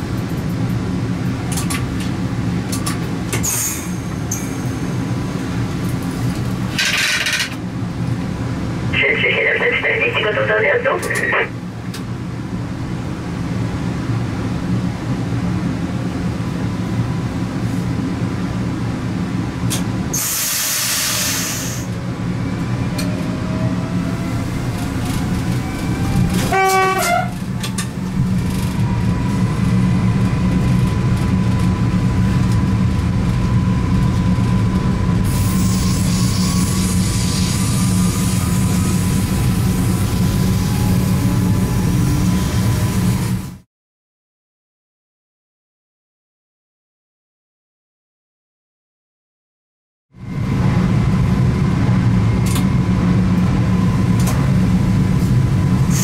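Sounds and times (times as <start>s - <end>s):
train wheels rumbling on track: 0.0s - 8.9s, 9.7s - 43.6s, 50.2s - 56.0s
train horn blast: 26.3s - 27.4s.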